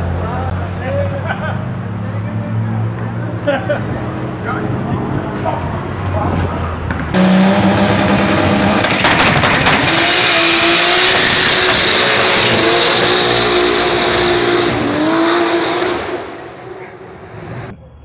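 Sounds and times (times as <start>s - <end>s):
engine crackles: 6.9s - 17.7s
engine revving high: 7.1s - 17.7s.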